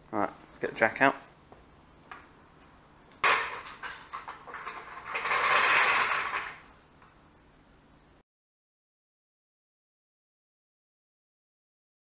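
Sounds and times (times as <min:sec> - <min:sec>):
metal trolley jack clatter: 0:03.2 - 0:06.6.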